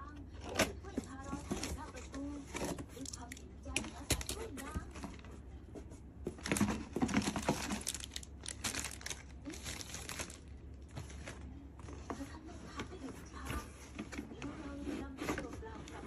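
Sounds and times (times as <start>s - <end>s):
plastic wrapping crinkling: 0.4s - 5.3s, 6.2s - 14.5s
cardboard flaps rustling: 0.5s - 3.1s.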